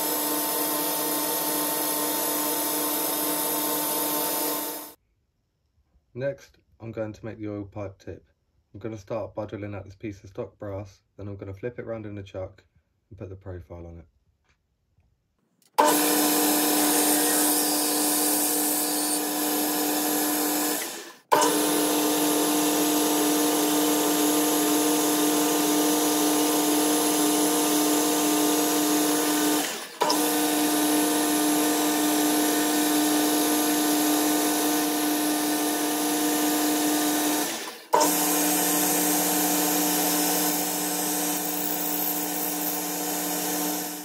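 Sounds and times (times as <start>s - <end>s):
drill bit boring into brass: 0.0s - 5.0s, 15.8s - 44.0s
lathe motor hum: 0.0s - 5.0s, 15.8s - 44.0s.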